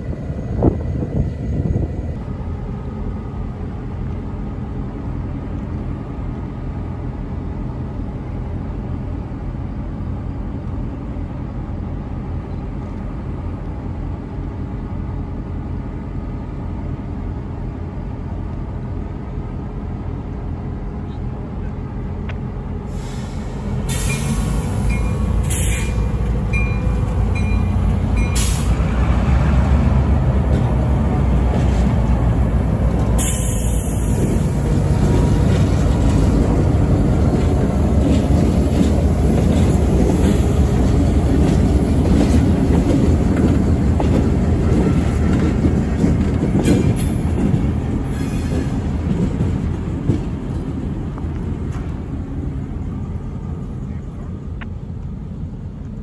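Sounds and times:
diesel locomotive engine rumble: 0:00.0 - 0:56.0
train wheels rolling on rails: 0:21.6 - 0:56.0
faint high wheel squeal: 0:23.2 - 0:28.7.

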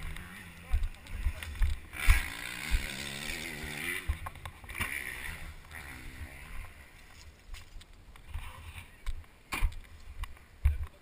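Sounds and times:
two-stroke dirt bike engine: 0:00.0 - 0:07.2.

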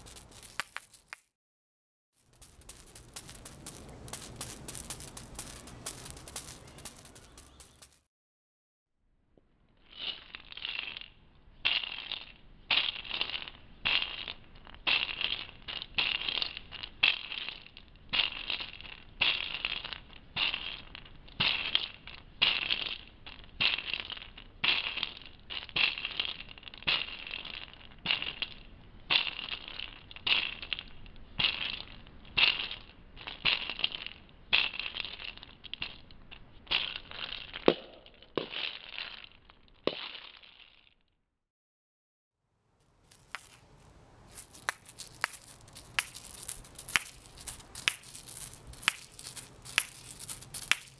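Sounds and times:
seed shell rattle shaking: 0:00.0 - 0:01.3, 0:02.2 - 0:08.1, 0:09.9 - 0:28.6, 0:29.3 - 0:36.1, 0:36.7 - 0:41.0, 0:42.8 - 0:50.9
sharp clacks: 0:00.0 - 0:01.3.

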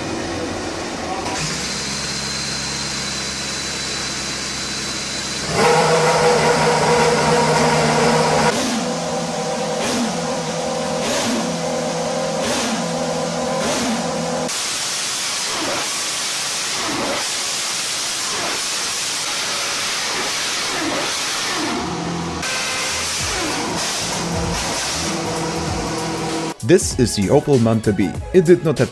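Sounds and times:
racing car engine revving: 0:05.4 - 0:14.5, 0:18.2 - 0:26.6.

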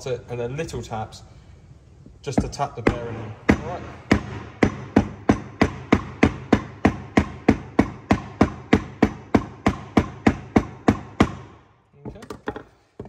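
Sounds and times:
mallet striking wooden block: 0:02.3 - 0:11.5.

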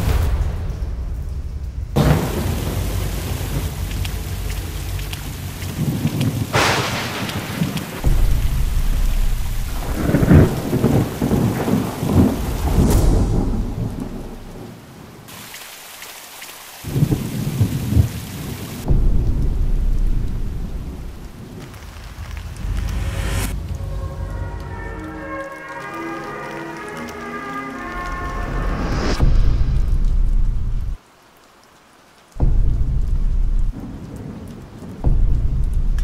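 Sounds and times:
sharp thunder crack: 0:00.0 - 0:14.8, 0:16.9 - 0:24.4, 0:28.8 - 0:31.0, 0:32.4 - 0:36.0
rolling thunder: 0:00.0 - 0:15.2, 0:16.9 - 0:25.7, 0:28.0 - 0:31.0, 0:32.4 - 0:36.0
steady rain: 0:00.0 - 0:36.0.

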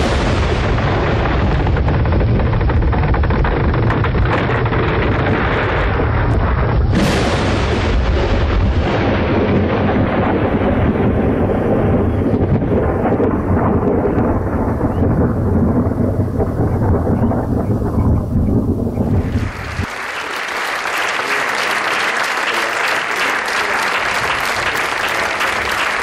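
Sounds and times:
storm noise with low rumble: 0:00.0 - 0:19.9
sharp thunderclap: 0:00.0 - 0:20.0.

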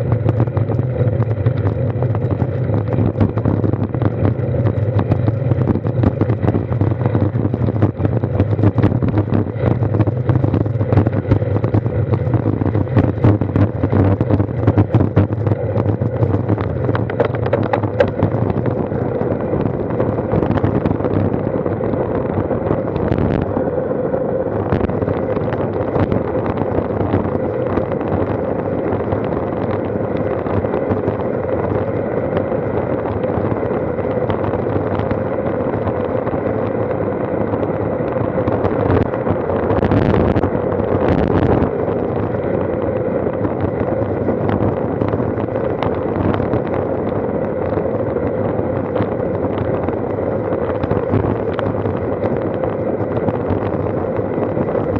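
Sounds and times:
handlebars rattling: 0:00.0 - 0:19.5
tyres rumbling on asphalt: 0:00.0 - 0:54.9
wind buffeting camera: 0:00.0 - 0:54.9.

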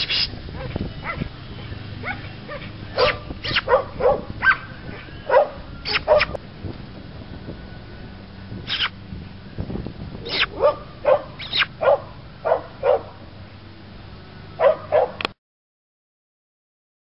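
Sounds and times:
dog barking: 0:00.5 - 0:01.3, 0:02.0 - 0:06.4, 0:10.3 - 0:13.2, 0:14.6 - 0:15.2.

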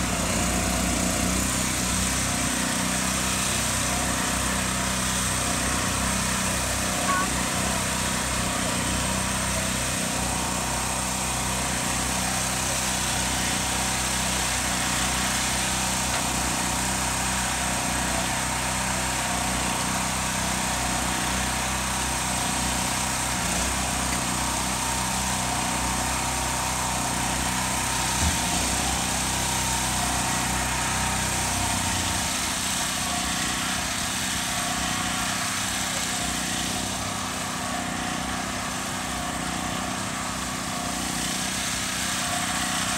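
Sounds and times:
small gasoline engine running: 0:00.0 - 0:42.9.

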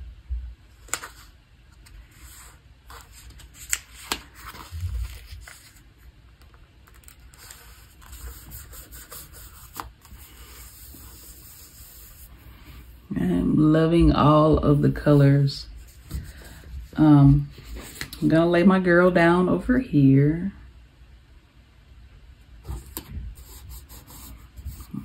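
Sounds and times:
paper rubbing and scraping: 0:00.9 - 0:06.0, 0:06.9 - 0:12.4, 0:22.6 - 0:25.0.

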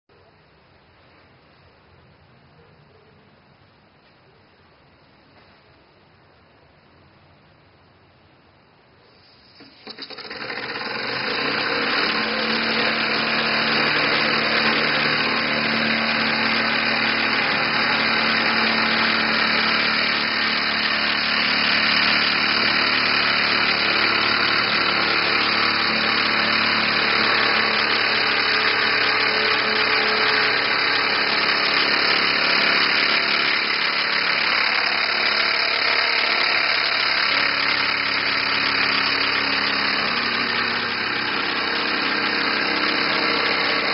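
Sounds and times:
hissing exhaust: 0:09.0 - 0:43.9
model steam engine running: 0:09.2 - 0:43.9.

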